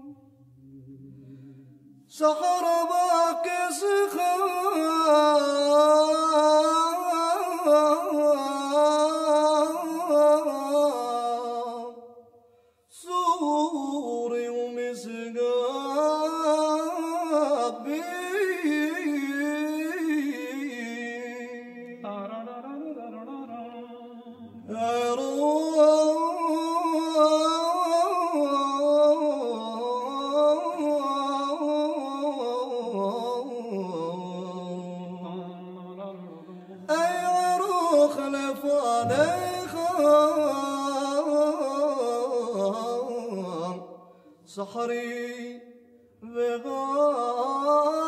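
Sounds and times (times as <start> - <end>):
person singing slow melody: 23.9 - 44.4.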